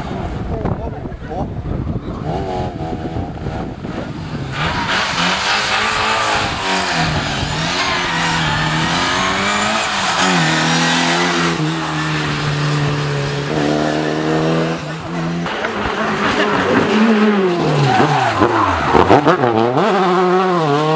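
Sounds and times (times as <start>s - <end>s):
rally car engine driven hard: 0.0s - 20.9s
rushing noise: 4.0s - 19.8s.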